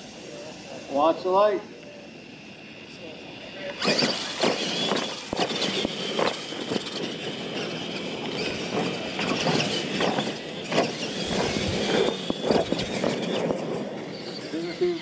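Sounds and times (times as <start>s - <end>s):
toy truck motors running hard: 0.0s - 15.0s
tyres churning dirt: 2.2s - 15.0s
toy trucks landing with knocks: 3.7s - 13.7s.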